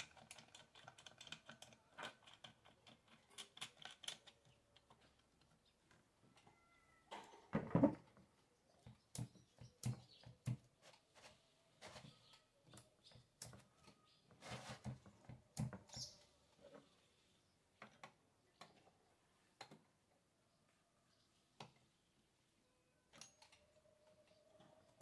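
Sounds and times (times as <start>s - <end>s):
metal parts clicking and rattling: 0.0s - 5.5s.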